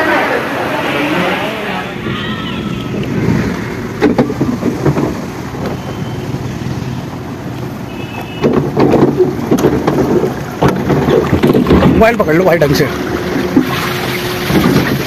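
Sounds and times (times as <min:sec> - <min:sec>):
boat rumbling and knocking: 0:00.0 - 0:15.0
water rushing: 0:00.0 - 0:15.0.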